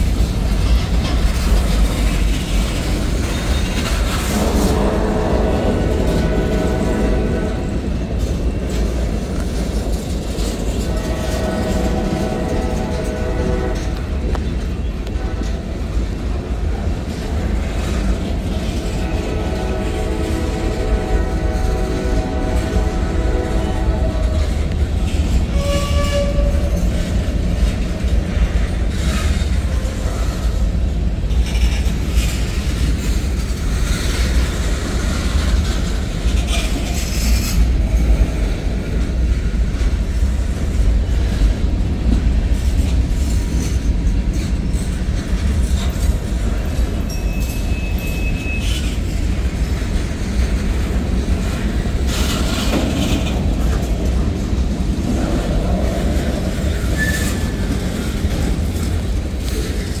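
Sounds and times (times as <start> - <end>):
freight cars rumbling: 0.0 - 60.0
wheels clacking over rail joints: 0.0 - 60.0
high wheel squeal: 47.1 - 49.2, 56.7 - 57.8.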